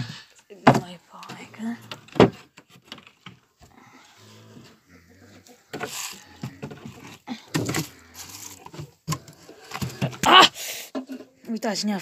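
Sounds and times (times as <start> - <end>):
grain feed rustling and rattling: 5.7 - 10.0.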